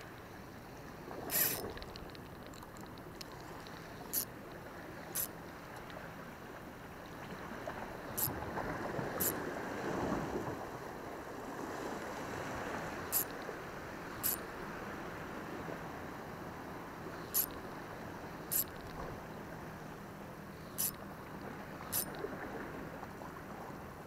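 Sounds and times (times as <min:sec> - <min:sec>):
wind: 0:00.0 - 0:24.0
sharp high ticks: 0:01.3 - 0:06.0, 0:08.0 - 0:08.4, 0:09.2 - 0:09.4, 0:13.0 - 0:13.5, 0:14.1 - 0:14.5, 0:17.2 - 0:17.7, 0:18.4 - 0:19.0, 0:20.5 - 0:21.2, 0:21.8 - 0:22.2.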